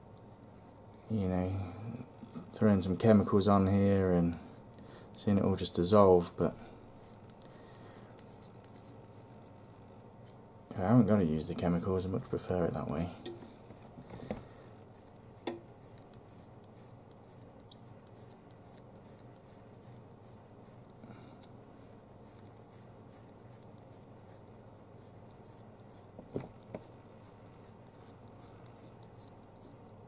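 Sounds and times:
thumb rubbing scratchy strokes: 6.9s - 10.4s, 13.8s - 21.0s, 21.8s - 29.9s.

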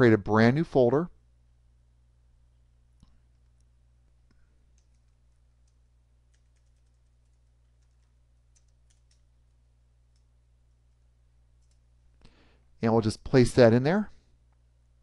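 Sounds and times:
low steady hum: 0.0s - 15.0s
keyboard typing: 4.7s - 9.3s, 11.6s - 11.9s.

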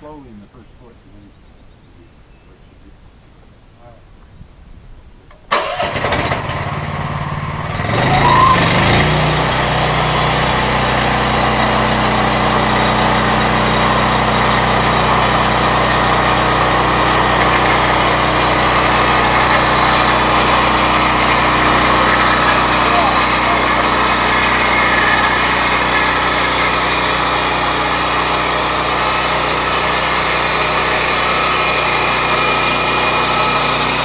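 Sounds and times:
small gasoline engine revving: 5.5s - 34.0s.

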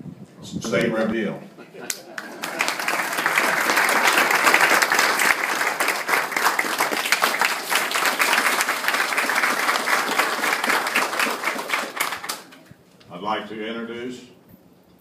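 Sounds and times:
crowd applauding: 1.9s - 12.7s.

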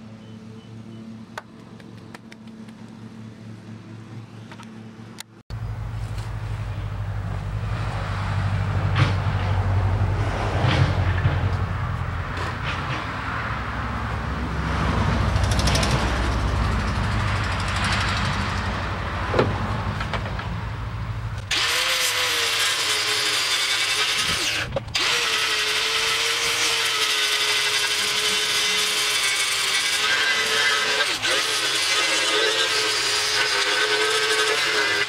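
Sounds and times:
power tool on sheet metal: 21.4s - 35.0s.

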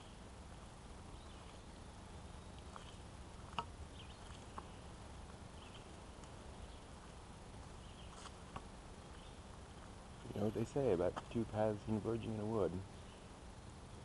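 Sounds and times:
footsteps on dirt trail: 2.6s - 11.4s.

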